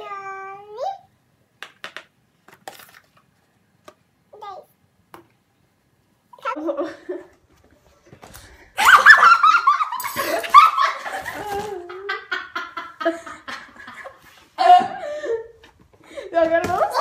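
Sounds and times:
girls laughing: 0:06.5 - 0:07.4, 0:08.7 - 0:15.6.

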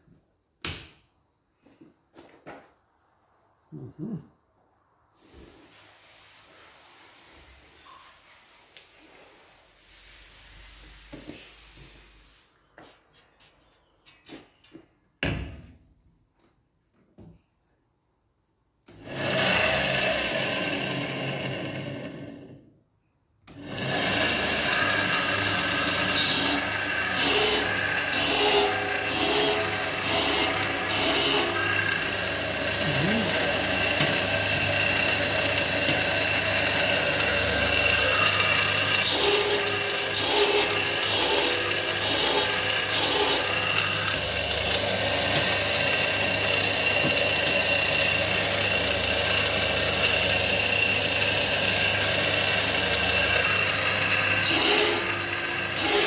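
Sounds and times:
sharpening machine motor running: 0:19.0 - 0:22.5, 0:23.5 - 0:56.0
grinding wheel on saw teeth: 0:19.0 - 0:22.6, 0:23.5 - 0:56.0.

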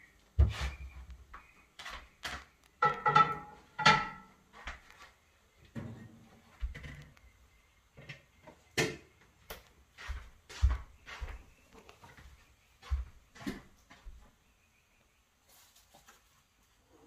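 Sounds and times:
kitchen utensils knocking and clattering: 0:02.8 - 0:04.4.

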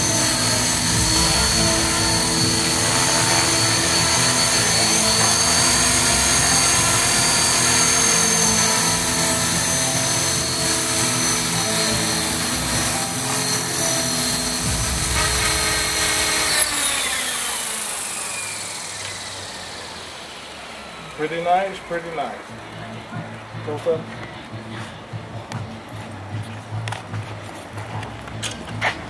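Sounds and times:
rc helicopter rotor whine: 0:00.0 - 0:22.4.

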